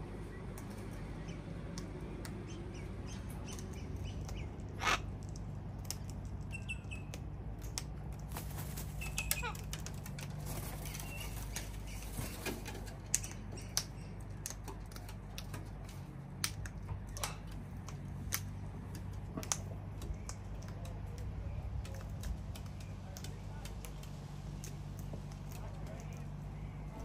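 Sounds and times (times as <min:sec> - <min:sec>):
low steady hum: 0:00.0 - 0:27.0
bird claws and beaks tapping: 0:03.1 - 0:26.4
wings flapping: 0:05.8 - 0:15.5.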